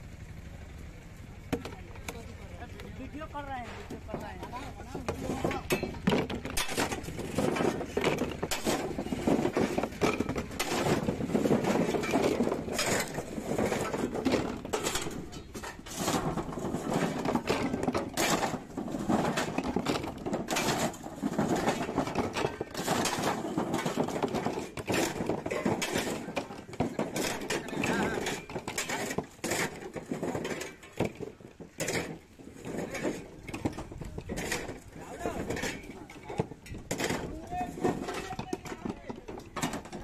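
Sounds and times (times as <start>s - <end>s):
coconuts knocking and thudding: 3.6s - 32.2s.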